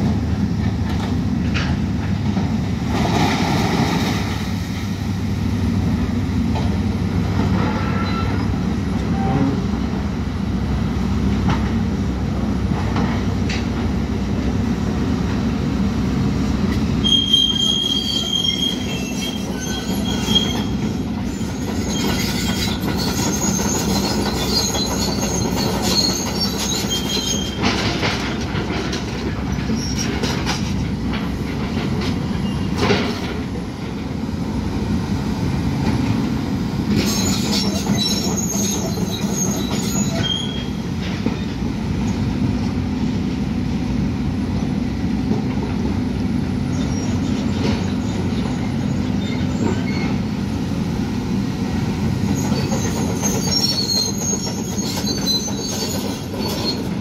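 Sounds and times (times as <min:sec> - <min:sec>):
excavator engine rumble: 0:00.0 - 0:57.0
metallic squealing and scraping: 0:17.0 - 0:27.8, 0:37.0 - 0:40.8, 0:52.3 - 0:57.0.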